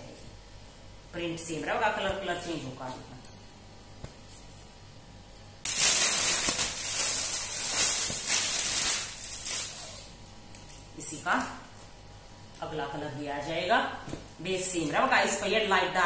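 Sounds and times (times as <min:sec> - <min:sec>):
plastic packaging crinkling: 0:05.6 - 0:10.9.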